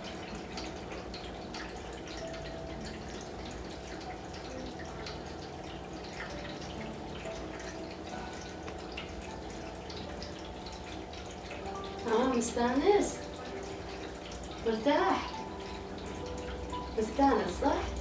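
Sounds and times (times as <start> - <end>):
low steady hum: 0.0 - 18.0
water trickling and dripping: 0.0 - 18.0.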